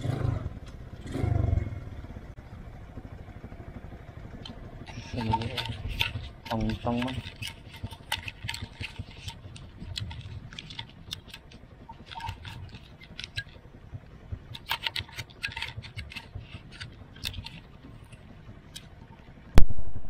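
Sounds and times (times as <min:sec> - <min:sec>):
faint low motorcycle rumble: 0:00.0 - 0:20.0
clicks and light rattles: 0:04.4 - 0:13.7, 0:14.4 - 0:19.4.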